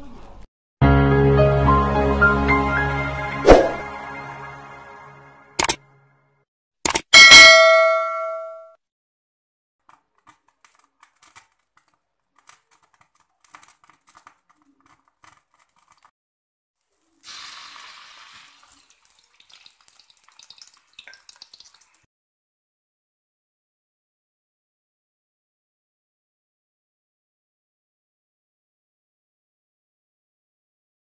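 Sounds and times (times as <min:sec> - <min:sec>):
notification bell ding: 0:07.2 - 0:08.8
food sizzling in hot oil: 0:16.8 - 0:22.1.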